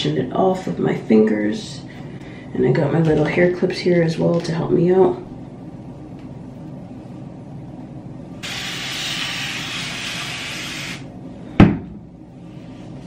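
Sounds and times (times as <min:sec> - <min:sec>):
spray bottle misting: 0:08.4 - 0:11.0.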